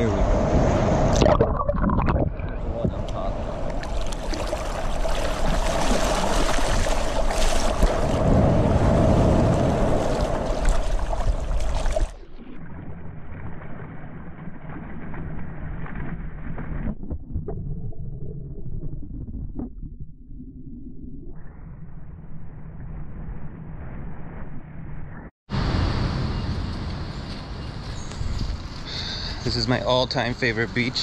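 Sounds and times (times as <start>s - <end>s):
underwater rumble: 0.0s - 25.3s
ocean surf splashing: 2.6s - 12.1s.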